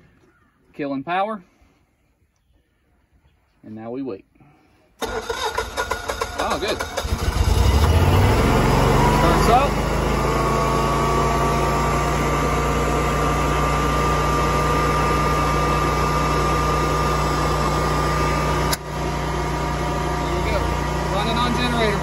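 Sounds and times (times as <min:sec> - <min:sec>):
generator engine running: 0:05.0 - 0:22.0.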